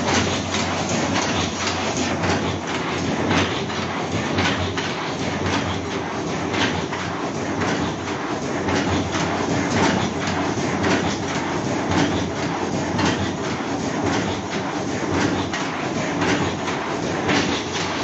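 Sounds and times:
machine rhythmic clatter: 0.0 - 18.0.

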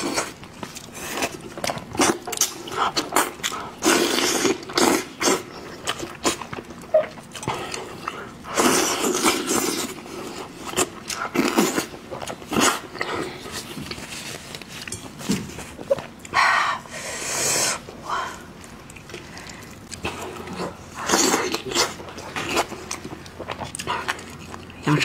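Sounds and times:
wet chewing and lip smacking: 18.3 - 25.0.

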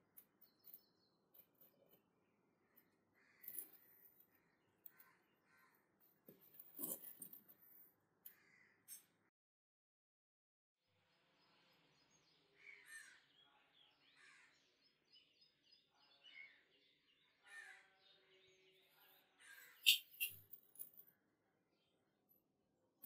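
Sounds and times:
birds calling: 19.4 - 20.4.

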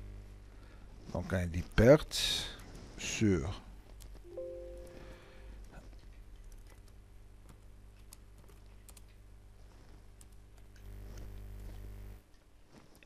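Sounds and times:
low hum: 4.2 - 5.8.

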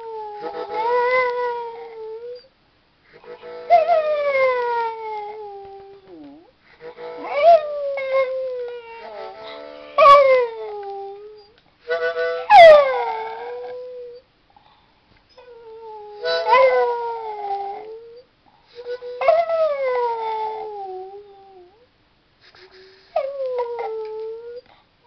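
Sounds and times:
dog howling: 7.2 - 11.4, 12.5 - 14.2, 15.5 - 18.2, 19.2 - 21.8.

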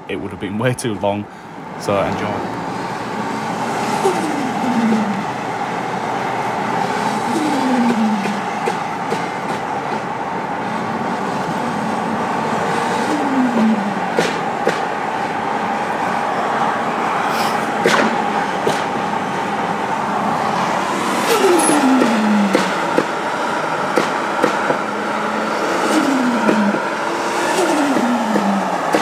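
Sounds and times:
road noise drone: 0.0 - 29.0
car engine revving: 1.6 - 29.0
sharp cracks: 17.7 - 19.0.

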